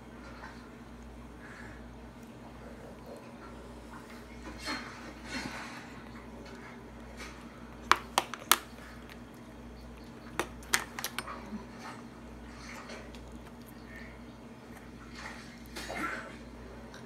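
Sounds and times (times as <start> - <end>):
utensil clicking on plastic tray: 7.9 - 9.2, 10.4 - 11.3.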